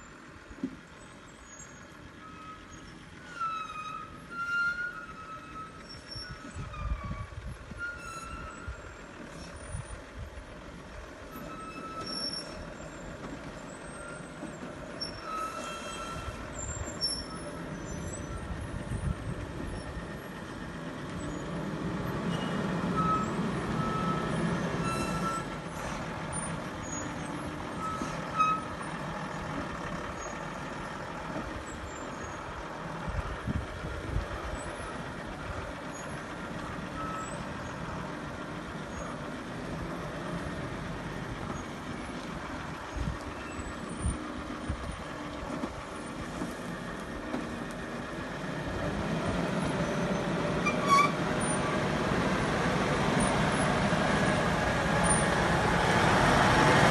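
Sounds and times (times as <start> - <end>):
lorry diesel engine crawling: 0.0 - 56.9
short high squeals: 1.4 - 9.8, 11.3 - 13.0, 13.8 - 19.0, 22.2 - 26.0, 26.8 - 28.9, 49.8 - 51.8.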